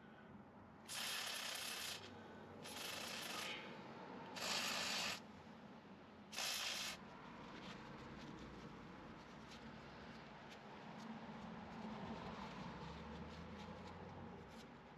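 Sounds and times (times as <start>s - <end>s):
aerosol spray hissing: 2.6s - 3.6s, 4.4s - 5.2s, 6.3s - 7.0s.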